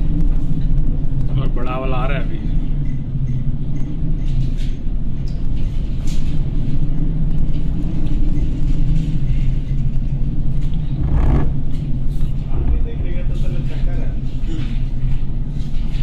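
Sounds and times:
wind: 0.0 - 16.0
ship machinery hum: 9.0 - 13.8.

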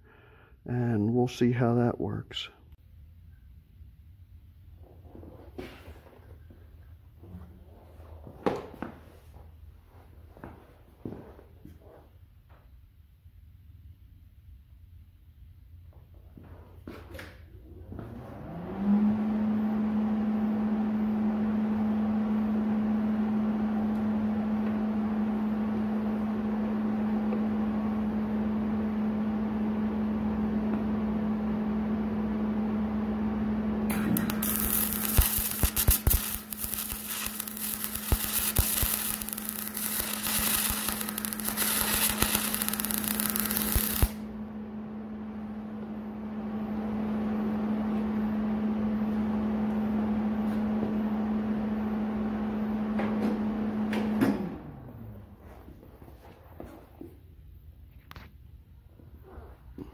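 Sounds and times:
steady hum: 22.9 - 48.4
welding arc hissing and crackling: 33.9 - 44.2.

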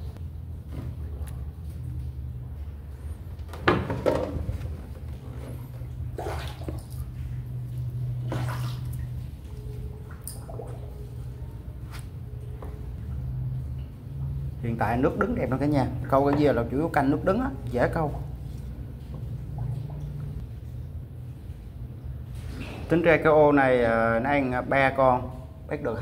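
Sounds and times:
steady low hum: 0.0 - 26.0
water splashing against boat: 4.3 - 11.1.

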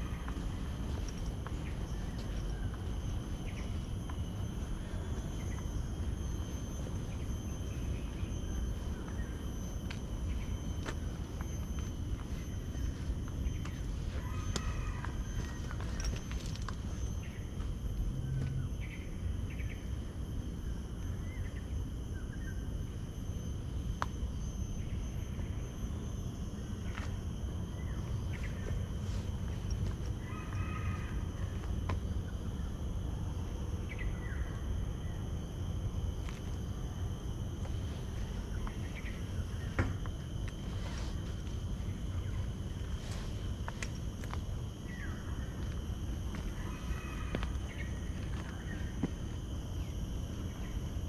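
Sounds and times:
footsteps on garden path: 0.0 - 18.6, 28.0 - 32.0, 40.0 - 44.6, 45.5 - 49.4
insects buzzing: 0.0 - 51.0.

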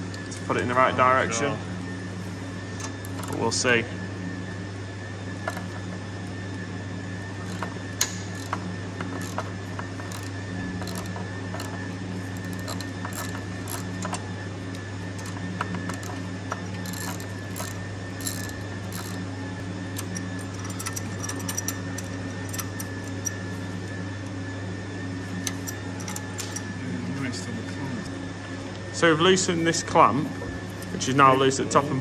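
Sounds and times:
steady low hum: 0.0 - 32.0
hand tools clicking on metal: 7.5 - 19.2, 20.0 - 23.4, 25.4 - 26.6.

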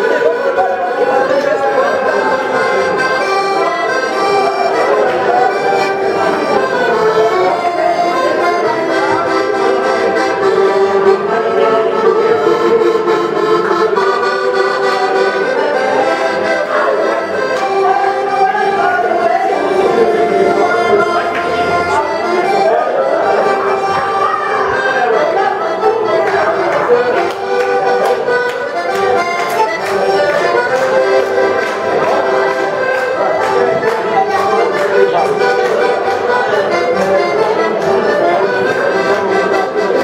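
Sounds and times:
accordion melody: 0.0 - 40.0.

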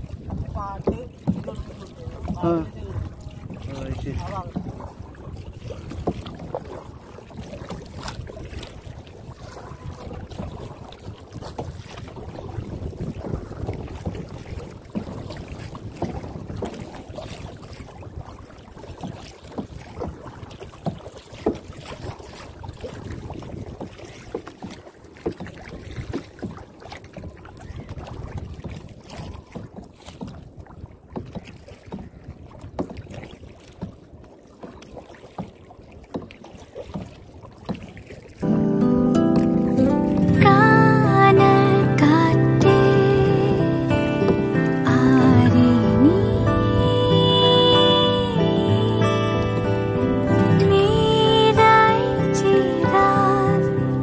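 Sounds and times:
wind buffeting microphone: 0.0 - 34.4
paddle splashing in water: 0.0 - 54.0.

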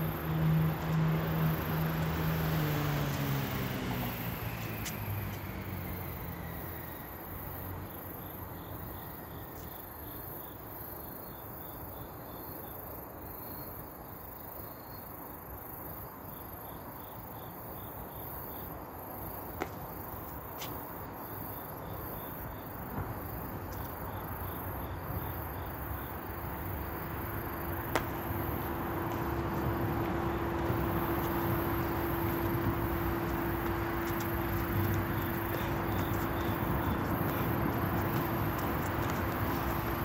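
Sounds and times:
crickets chirping: 0.0 - 40.0.

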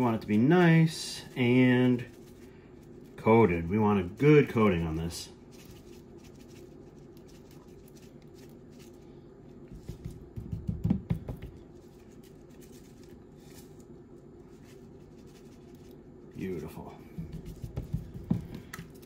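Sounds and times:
steady low hum: 0.0 - 19.0
hand patting meat: 9.7 - 11.7, 17.1 - 19.0.

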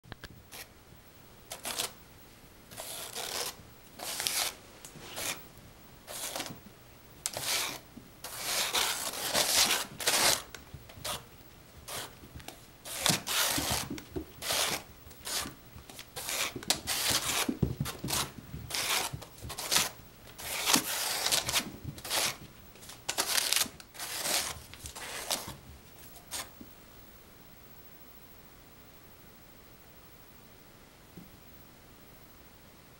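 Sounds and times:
kitten claws scratching carpet: 2.7 - 5.4, 6.1 - 6.6, 7.3 - 26.6.

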